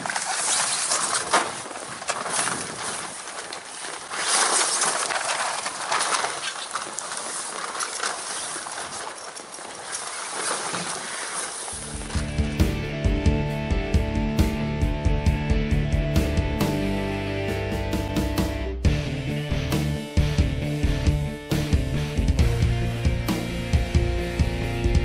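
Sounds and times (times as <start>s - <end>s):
fabric flapping in wind: 0.0s - 12.5s.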